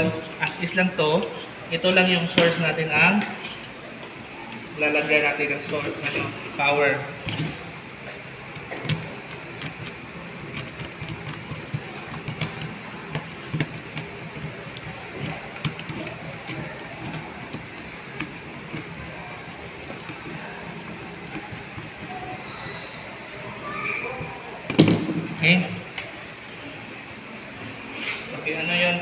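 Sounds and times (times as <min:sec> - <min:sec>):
steady background hum: 0:00.0 - 0:29.0.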